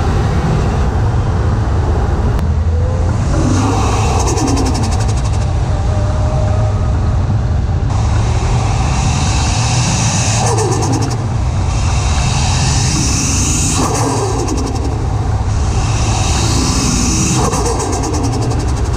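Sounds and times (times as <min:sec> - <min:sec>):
car engine revving: 0:02.3 - 0:18.9
turbo hiss: 0:07.9 - 0:18.9
turbo flutter: 0:08.8 - 0:18.9.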